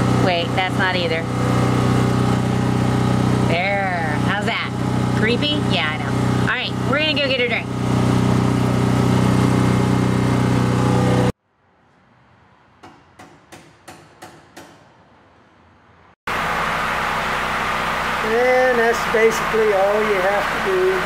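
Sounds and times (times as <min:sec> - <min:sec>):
engine running steadily: 0:00.0 - 0:11.4, 0:16.3 - 0:21.0.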